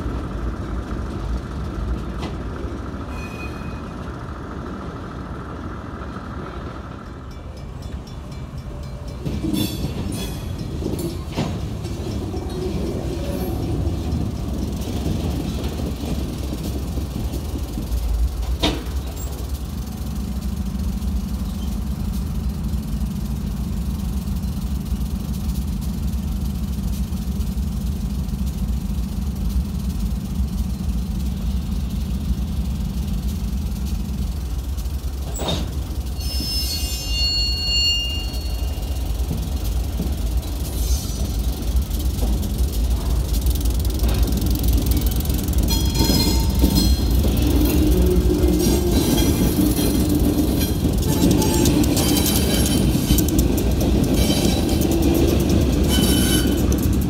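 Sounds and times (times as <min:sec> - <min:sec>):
diesel locomotive: 0:00.0 - 0:57.0
freight cars rumbling: 0:00.0 - 0:57.0
train wheel squeal: 0:03.0 - 0:04.6, 0:07.0 - 0:19.5, 0:21.1 - 0:23.4, 0:35.2 - 0:43.3, 0:44.0 - 0:57.0.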